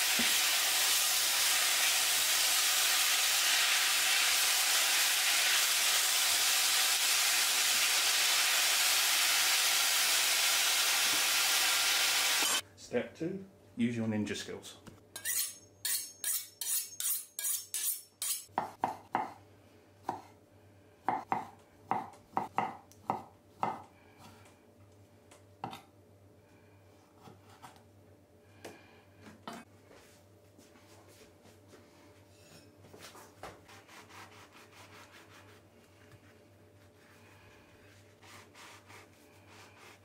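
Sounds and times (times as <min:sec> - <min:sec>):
knife chopping on cutting board: 0:18.5 - 0:19.4, 0:20.1 - 0:20.3.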